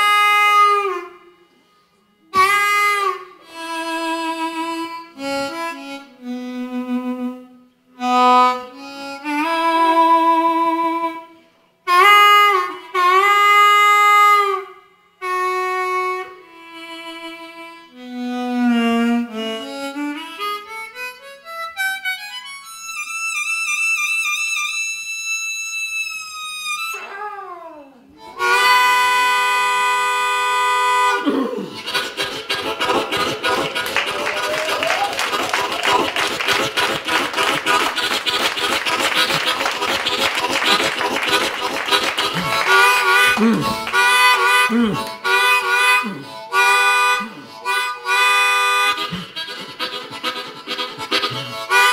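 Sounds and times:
blues harmonica: 0.0 - 27.1, 28.1 - 51.9.

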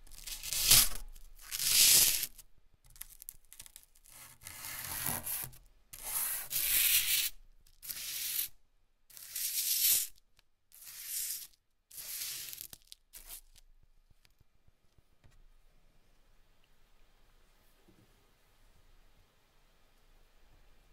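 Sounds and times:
charcoal scraping on paper: 0.0 - 2.4, 3.0 - 13.6.

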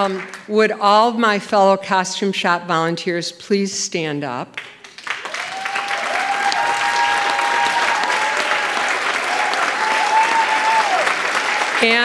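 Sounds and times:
audience applauding: 4.6 - 12.0.

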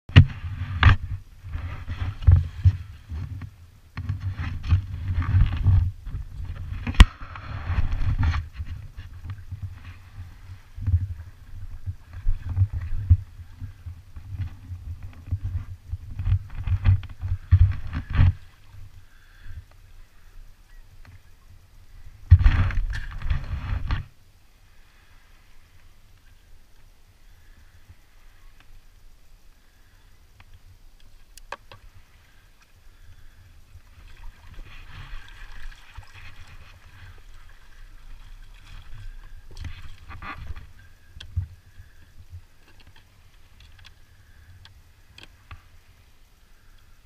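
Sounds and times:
water slapping against hull: 33.9 - 42.0.

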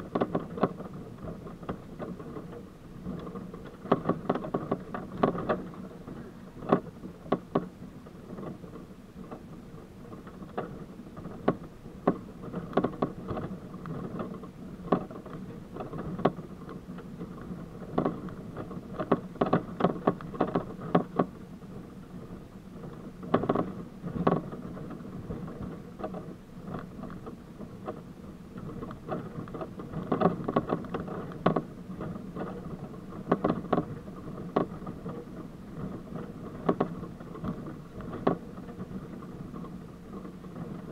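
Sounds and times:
knocks and rattles over rocks: 0.0 - 40.9.

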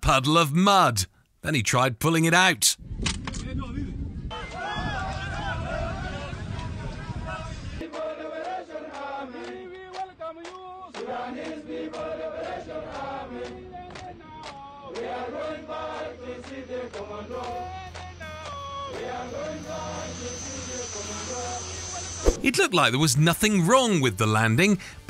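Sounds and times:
men chanting together: 5.4 - 21.7.

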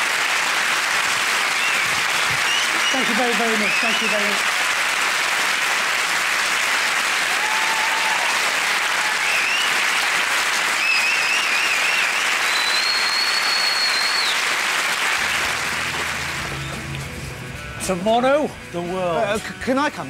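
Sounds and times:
audience applauding: 0.0 - 17.1
high whistles: 1.6 - 4.0, 9.2 - 9.8, 10.8 - 14.4.

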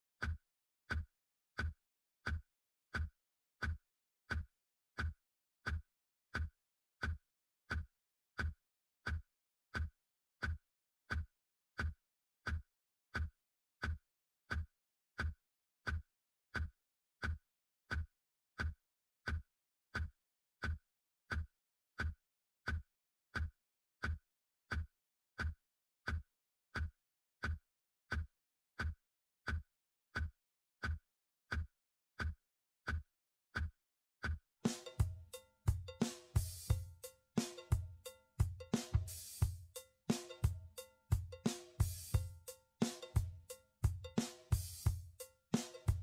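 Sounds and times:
metronome thump and click beat: 34.7 - 46.0.

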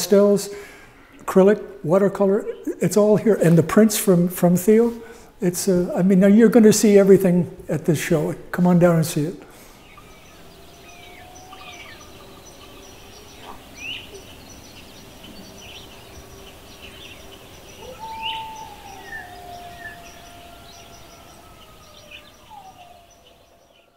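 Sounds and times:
background hiss: 0.0 - 23.9
birds chirping and calling: 9.1 - 23.9
long whistled bird calls: 9.8 - 23.9.

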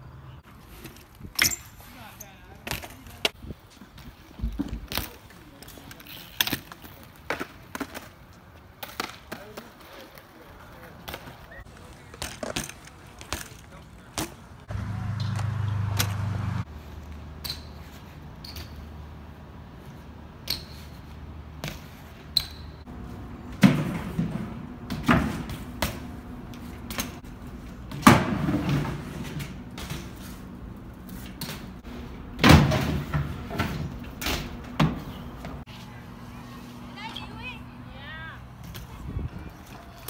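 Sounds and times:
bike landing clattering hits: 32.4 - 35.1.

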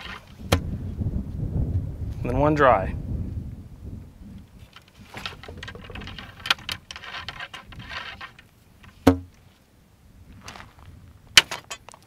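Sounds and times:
cleaning rod scratchy rubbing: 5.0 - 8.4.

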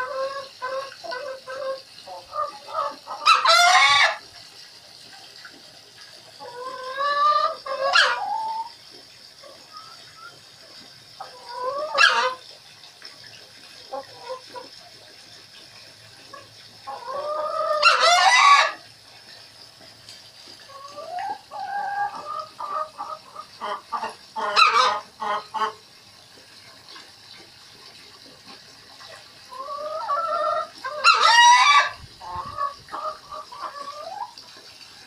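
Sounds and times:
hen clucking and calling: 0.0 - 4.2, 6.4 - 8.8, 11.2 - 12.5, 13.9 - 14.7, 16.3 - 18.8, 20.6 - 25.8, 29.5 - 34.4.

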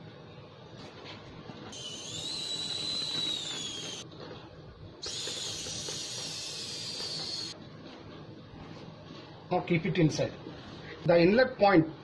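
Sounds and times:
high-pitched hissing whistles: 1.8 - 4.0, 5.0 - 7.6.

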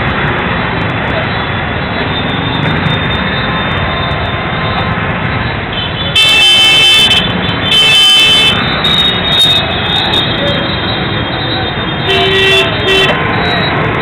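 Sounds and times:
busy street traffic: 0.0 - 14.0
crowd noise: 0.0 - 14.0
high-pitched vehicle horn blasts: 5.8 - 10.1, 12.0 - 13.2.

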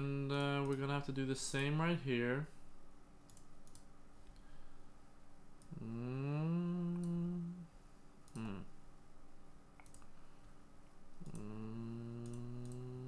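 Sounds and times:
man humming: 0.0 - 0.5, 5.6 - 8.8, 11.2 - 13.0
computer mouse clicks: 0.4 - 0.9, 3.3 - 4.5, 8.2 - 8.5, 9.8 - 10.6, 11.2 - 13.0.

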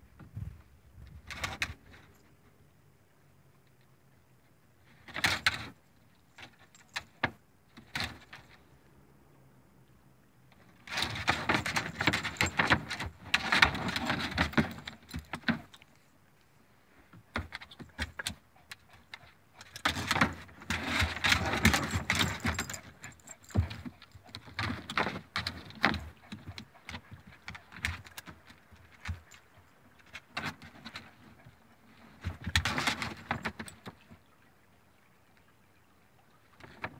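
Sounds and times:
clicks and rattles: 5.1 - 8.6, 10.5 - 15.9, 17.2 - 34.1.

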